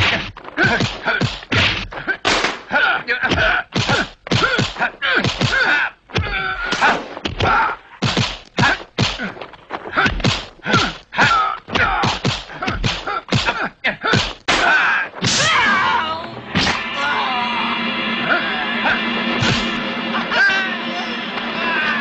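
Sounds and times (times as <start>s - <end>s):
punch and kick impacts: 0.0s - 2.7s, 3.3s - 15.6s
fighters grunting and shouting: 0.0s - 16.2s.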